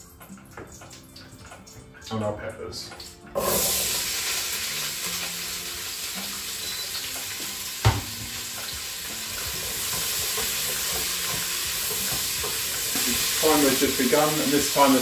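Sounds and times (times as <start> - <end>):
peppers sizzling in hot oil: 3.0 - 15.0.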